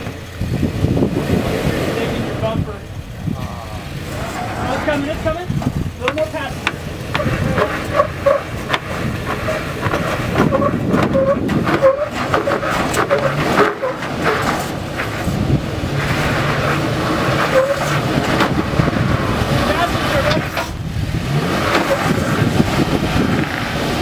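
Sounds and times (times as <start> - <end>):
truck engine under load: 0.0 - 24.0
rubber and metal scraping rock: 4.0 - 24.0
tyres scrubbing and chirping on rock: 7.2 - 15.3.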